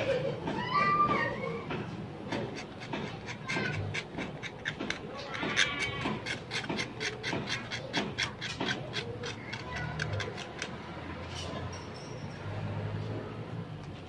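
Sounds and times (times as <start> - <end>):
metal spatula scraping paint: 2.2 - 11.9.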